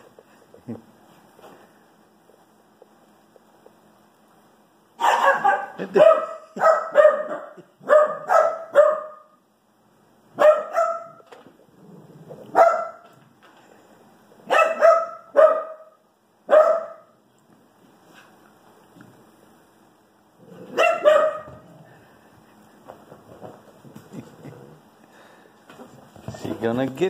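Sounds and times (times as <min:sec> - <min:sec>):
small dog barking: 0:05.0 - 0:09.4, 0:10.4 - 0:11.2, 0:12.5 - 0:13.1, 0:14.5 - 0:17.2, 0:20.7 - 0:21.6.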